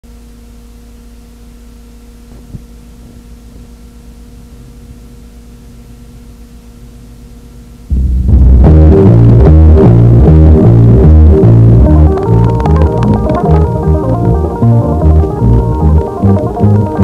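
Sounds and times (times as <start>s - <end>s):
electrical hum: 0.0s - 17.0s
faint steady tones: 1.6s - 17.0s
loud music with strong beat: 7.9s - 17.0s.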